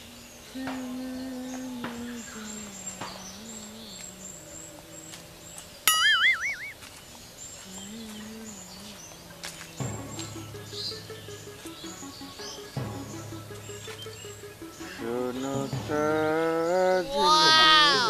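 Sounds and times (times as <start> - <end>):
person humming a tune: 0.0 - 6.7, 7.6 - 10.7, 14.6 - 18.0
birds chirping: 0.0 - 18.0
loud warbling whistle: 5.9 - 6.8
background music with bass line: 9.8 - 17.4.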